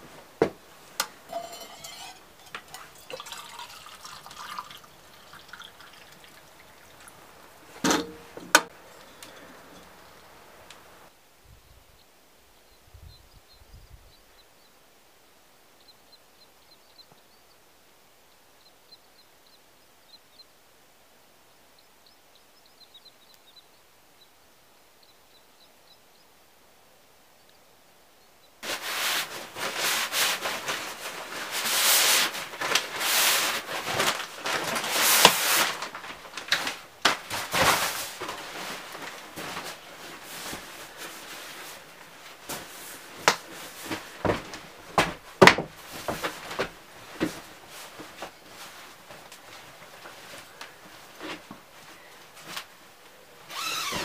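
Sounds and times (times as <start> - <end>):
rustling and clattering: 0.0 - 3.5, 28.6 - 52.8.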